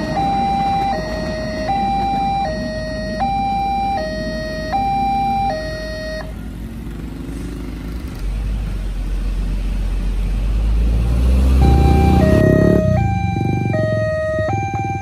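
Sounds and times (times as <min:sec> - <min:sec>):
two-tone crossing alarm: 0:00.0 - 0:06.3, 0:11.5 - 0:15.0
car and motorcycle engines: 0:00.0 - 0:15.0.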